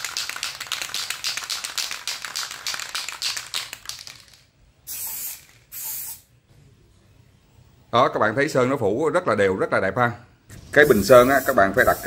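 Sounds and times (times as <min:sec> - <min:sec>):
spray can ball rattling: 0:00.0 - 0:06.2, 0:10.9 - 0:12.0
spray can hissing: 0:04.9 - 0:06.3, 0:10.8 - 0:12.0.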